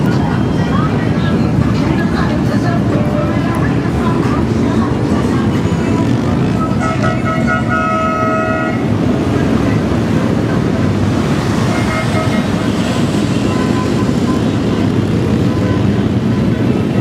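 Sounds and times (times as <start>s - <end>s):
street traffic noise: 0.0s - 17.0s
truck road noise hissing: 0.0s - 17.0s.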